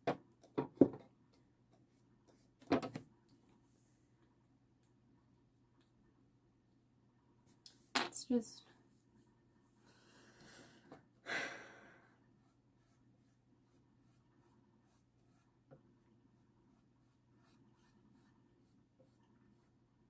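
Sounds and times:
person sighing: 10.5s - 12.1s.

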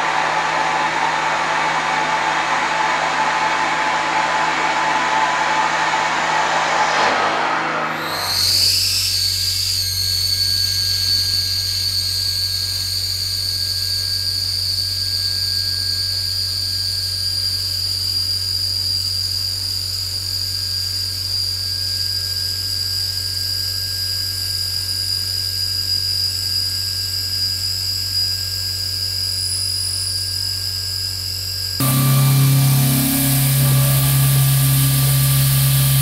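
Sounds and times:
end mill cutting steel whine: 31.8s - 36.0s
low machine hum: 31.8s - 36.0s.

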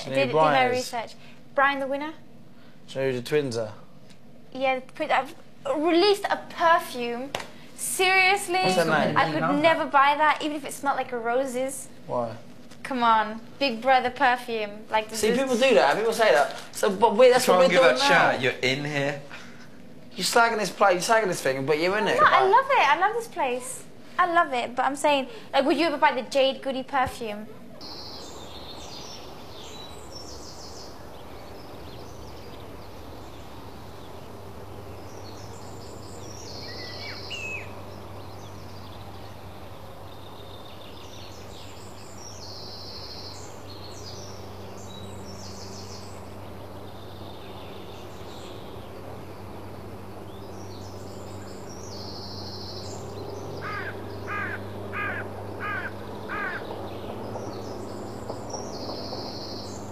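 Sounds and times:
birds singing: 0.0s - 59.9s
low electrical hum: 0.0s - 59.9s
rising bird calls: 27.5s - 59.9s.

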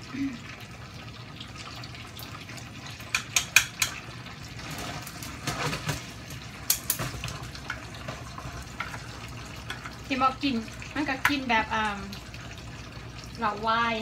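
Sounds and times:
meat sizzling in a pan: 2.2s - 12.1s
chopsticks clicking against pan: 3.1s - 4.0s.

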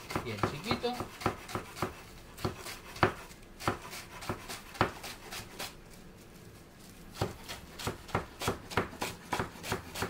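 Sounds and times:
knife chopping on wooden board: 0.0s - 5.8s, 7.1s - 10.0s.

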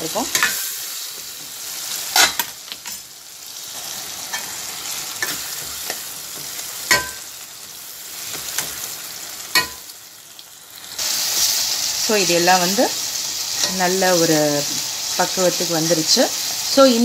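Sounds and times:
vegetables sizzling in oil: 0.0s - 17.0s
spatula scraping and knocking pan: 5.2s - 7.3s.

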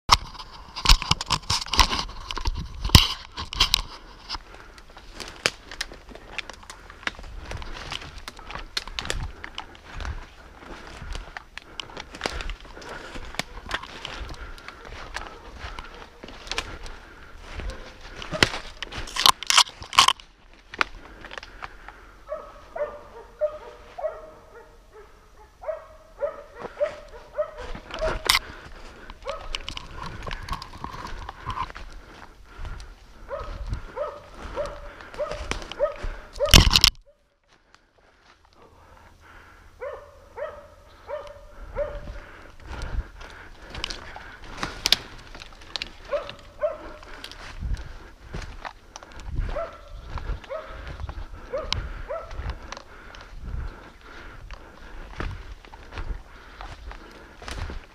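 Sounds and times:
twigs cracking: 0.1s - 24.6s, 25.7s - 57.9s
footsteps crunching dry leaves: 0.3s - 24.6s, 25.7s - 36.9s, 40.4s - 57.9s
dogs barking: 12.3s - 19.0s, 22.2s - 31.2s, 33.1s - 37.3s, 39.8s - 45.2s, 45.8s - 47.5s, 49.1s - 53.1s.

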